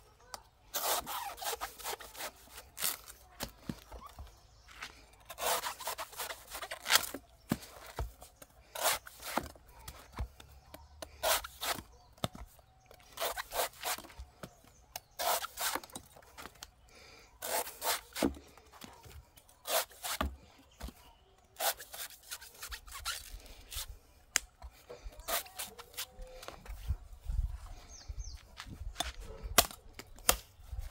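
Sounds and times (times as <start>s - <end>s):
knife scraping coconut husk: 0.7s - 10.2s, 10.8s - 12.4s, 13.0s - 14.2s, 14.9s - 16.1s, 17.4s - 18.4s, 19.0s - 20.9s, 21.6s - 24.0s, 25.0s - 26.6s.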